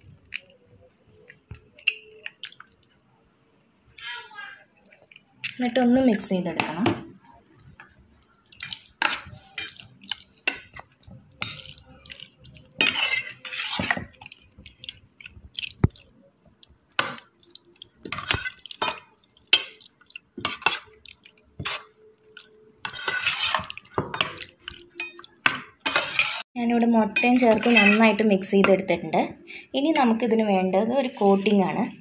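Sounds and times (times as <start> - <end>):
wet squelching of coated chicken: 7.5 - 26.3
metal spoon scraping steel bowl: 12.8 - 14.1, 22.8 - 25.2, 25.8 - 26.4, 27.2 - 28.2.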